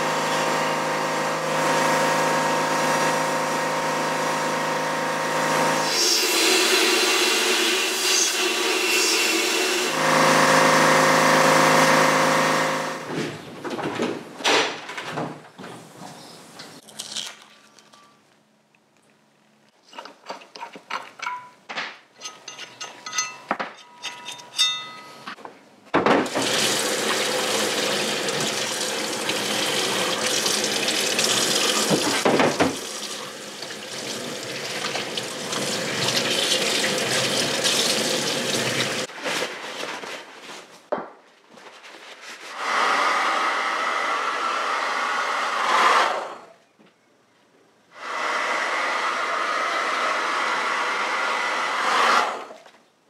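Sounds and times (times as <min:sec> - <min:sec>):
metallic clinks and knocks: 0:20.9 - 0:21.6, 0:22.2 - 0:25.4
water running into sink: 0:26.2 - 0:39.1.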